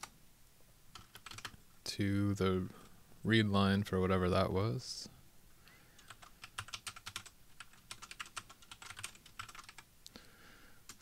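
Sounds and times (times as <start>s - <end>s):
typing on computer keyboard: 1.0s - 1.6s, 6.0s - 9.8s.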